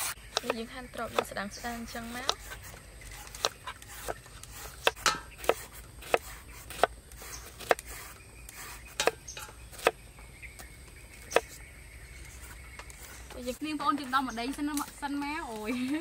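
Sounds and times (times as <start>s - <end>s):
knife chopping on wooden board: 0.0s - 10.0s, 11.3s - 11.6s.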